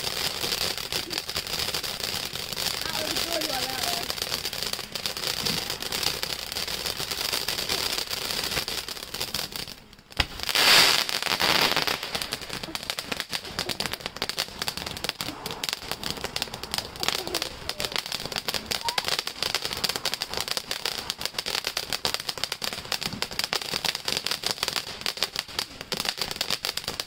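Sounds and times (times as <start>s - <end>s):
firework fountain hissing and crackling: 0.0s - 27.0s
firework rushing burst: 0.0s - 27.0s.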